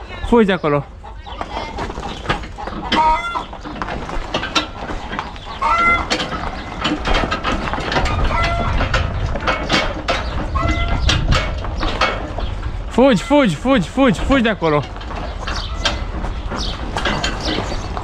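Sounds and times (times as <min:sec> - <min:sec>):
chickens clucking: 0:00.0 - 0:18.0
scattered knocks: 0:02.1 - 0:12.9, 0:14.0 - 0:18.0
low rumble: 0:07.1 - 0:13.0.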